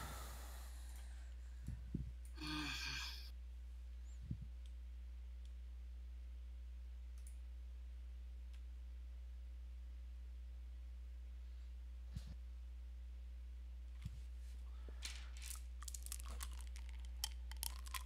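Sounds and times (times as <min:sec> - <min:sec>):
person sighing: 0:00.0 - 0:00.9, 0:02.4 - 0:03.3
faint mouse clicks: 0:07.1 - 0:07.4.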